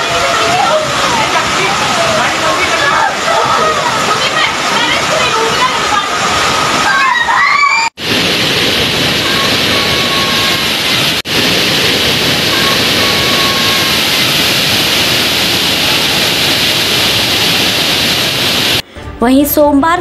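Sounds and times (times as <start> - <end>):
floodwater rushing: 0.0 - 18.8.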